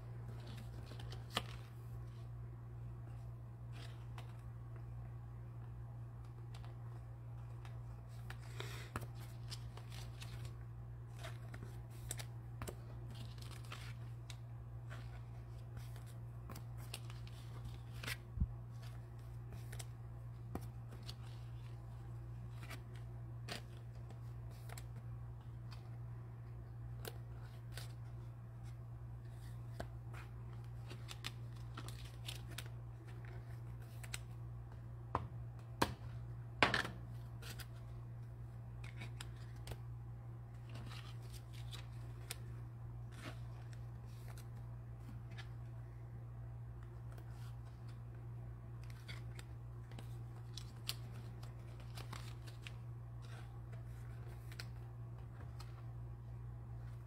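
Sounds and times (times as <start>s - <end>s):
trading cards rustling and clicking: 0.2s - 2.2s, 6.2s - 34.8s, 37.1s - 39.9s, 40.6s - 45.8s, 46.8s - 56.0s.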